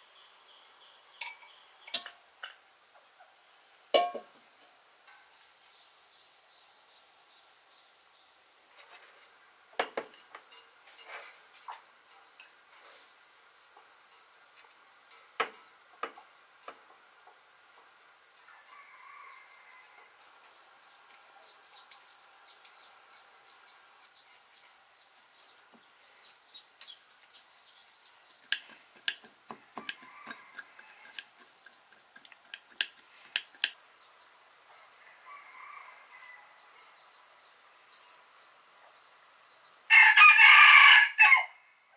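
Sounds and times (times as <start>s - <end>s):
faint high insect hum: 0.0s - 41.9s
utensils clinking on ceramic plate: 28.5s - 31.5s, 32.2s - 33.8s.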